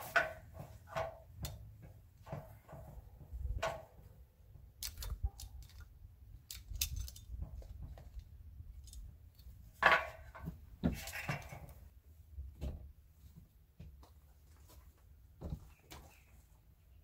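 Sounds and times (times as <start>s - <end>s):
hand tools clicking and knocking: 0.0s - 11.8s
pliers clinking: 6.5s - 7.3s.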